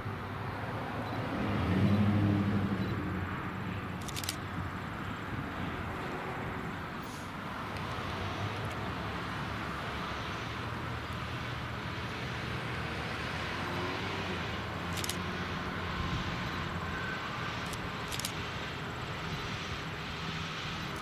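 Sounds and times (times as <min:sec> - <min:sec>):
sharp clicks: 0:04.0 - 0:04.4, 0:14.9 - 0:15.2, 0:17.6 - 0:18.4.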